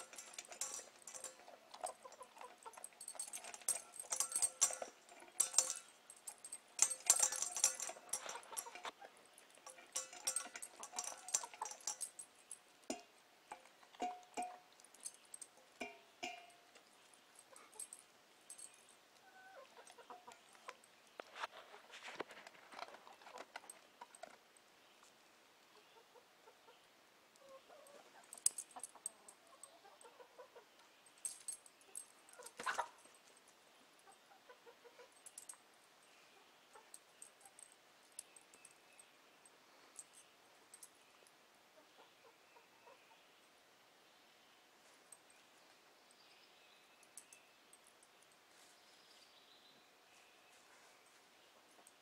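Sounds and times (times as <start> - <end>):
beak pecking metal bowl: 0.0 - 16.9
clinking at a steel bowl: 0.0 - 21.2
chickens clucking softly: 19.2 - 20.8, 25.6 - 30.9, 34.0 - 35.2, 41.7 - 43.3.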